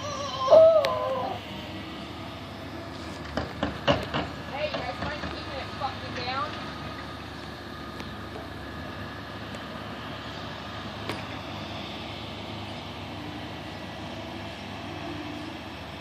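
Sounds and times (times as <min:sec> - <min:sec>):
moving vehicle rumble: 0:00.0 - 0:16.0.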